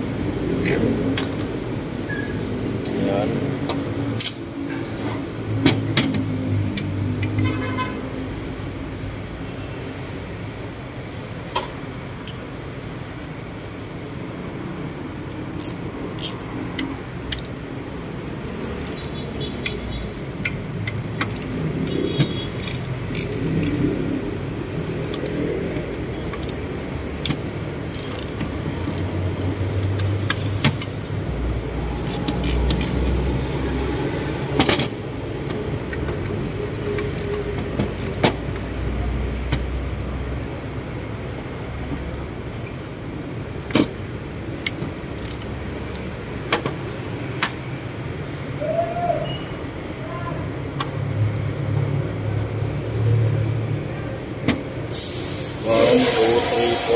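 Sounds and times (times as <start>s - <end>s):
metal clicks and clinks: 4.2s - 4.8s.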